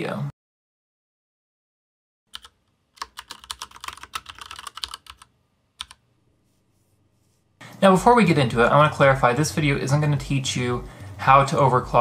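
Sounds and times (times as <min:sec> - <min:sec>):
keyboard typing: 0:02.3 - 0:06.0.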